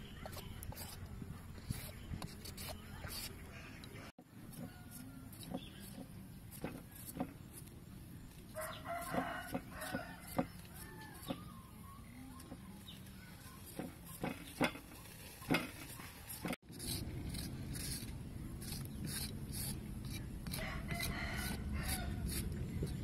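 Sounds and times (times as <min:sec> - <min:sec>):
peeler scraping carrot: 0:00.0 - 0:03.6, 0:04.4 - 0:11.6, 0:12.2 - 0:23.0
knife paring potato on wood: 0:04.5 - 0:07.8, 0:08.9 - 0:11.4.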